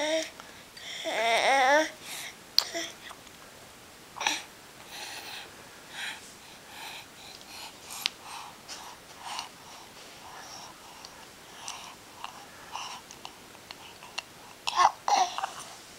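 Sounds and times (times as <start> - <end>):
baby breathing in noisy puffs: 4.2 - 13.1.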